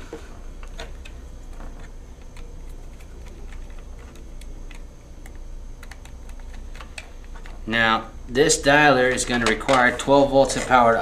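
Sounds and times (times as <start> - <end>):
steady low hum: 0.0 - 11.0
small wires clicking into terminals: 0.6 - 7.7.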